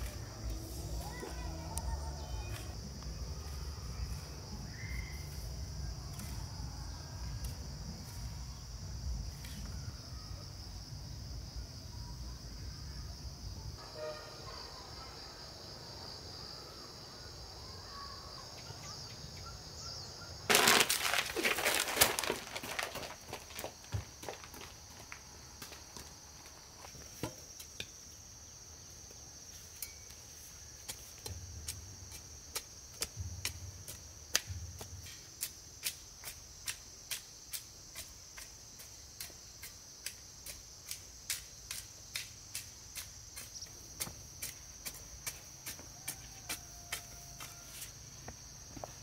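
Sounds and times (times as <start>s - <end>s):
insect chirring: 0.0s - 13.7s, 14.5s - 49.0s.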